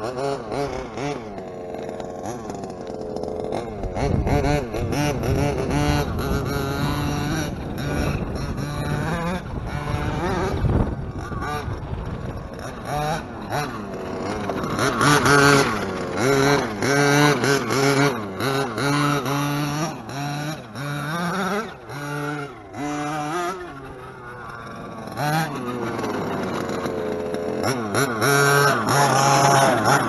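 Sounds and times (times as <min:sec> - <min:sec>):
small two-stroke engine revving: 0:00.0 - 0:30.0.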